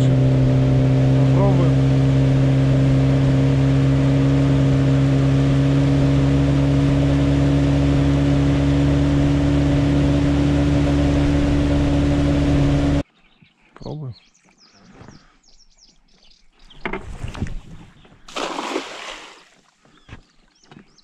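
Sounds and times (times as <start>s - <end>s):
outboard motor humming: 0.0s - 13.0s, 18.3s - 19.5s.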